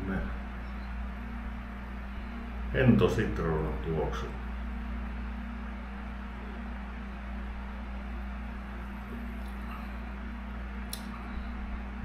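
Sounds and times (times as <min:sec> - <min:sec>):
electric fan humming: 0:00.0 - 0:12.0.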